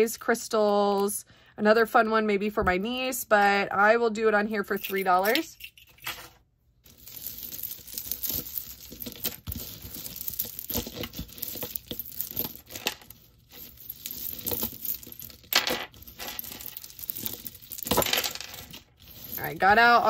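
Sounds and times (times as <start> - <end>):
jewelry clattering and clinking: 4.6 - 20.0.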